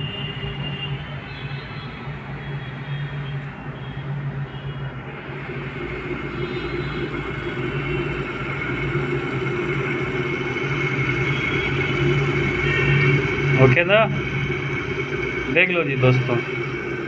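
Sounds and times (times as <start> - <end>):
electric kettle heating water: 5.1 - 17.0.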